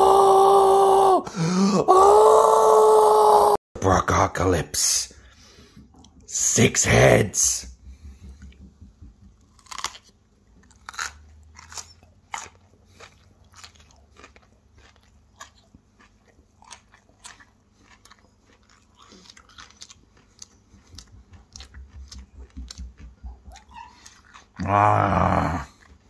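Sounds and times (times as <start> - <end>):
person chewing crunchy broccoli: 9.3 - 26.0.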